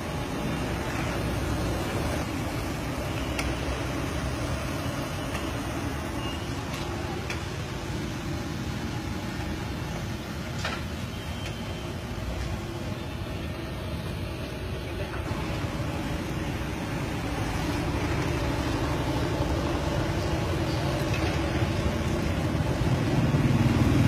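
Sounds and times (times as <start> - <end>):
street noise rumble: 0.0 - 24.0.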